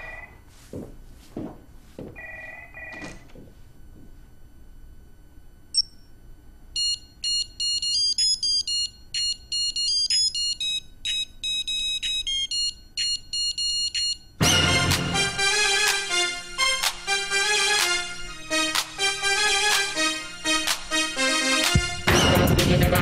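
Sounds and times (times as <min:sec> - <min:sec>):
digital watch beeping tune: 0:06.8 - 0:14.3
electro-funk dance music: 0:20.7 - 0:23.0.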